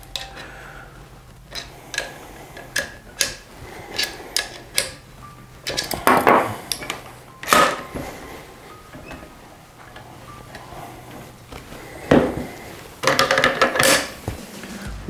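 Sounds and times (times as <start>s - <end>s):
metallic clicks and taps: 0.0s - 0.4s, 1.4s - 5.0s, 5.6s - 7.8s.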